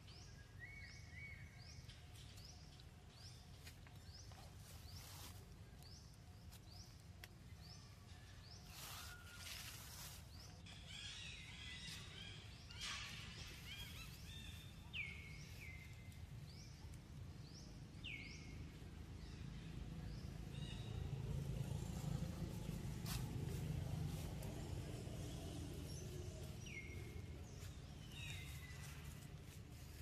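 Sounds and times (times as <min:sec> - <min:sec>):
low steady rumble: 0:10.4 - 0:30.0.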